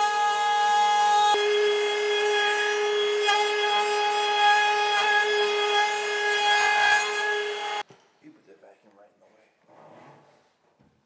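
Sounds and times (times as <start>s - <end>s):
router whining while cutting wood: 0.0s - 7.8s.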